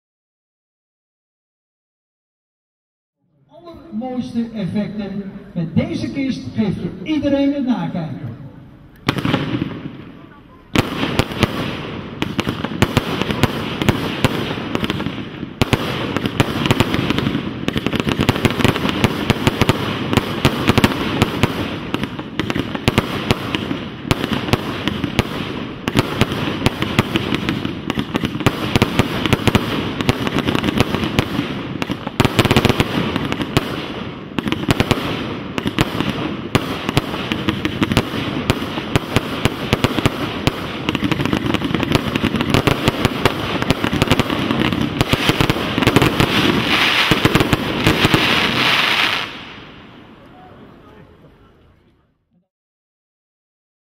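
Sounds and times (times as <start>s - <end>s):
firework shells bursting: 10.8s - 49.7s.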